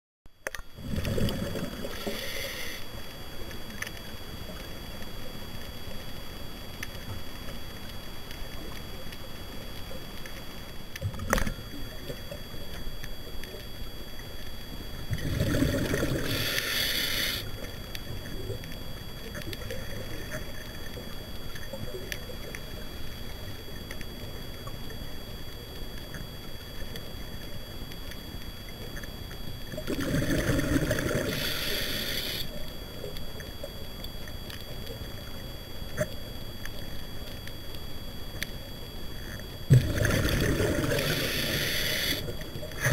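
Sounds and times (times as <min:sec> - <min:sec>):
faint high whine: 0:00.3 - 0:42.9
background hiss: 0:00.5 - 0:42.9
bubbling exhaled bubbles: 0:00.8 - 0:02.2, 0:15.1 - 0:16.6, 0:29.7 - 0:31.5, 0:39.7 - 0:41.6.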